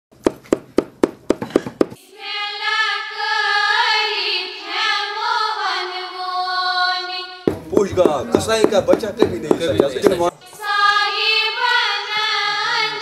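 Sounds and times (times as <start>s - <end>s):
pounder striking meat on wood: 0.2s - 2.0s, 7.5s - 10.3s.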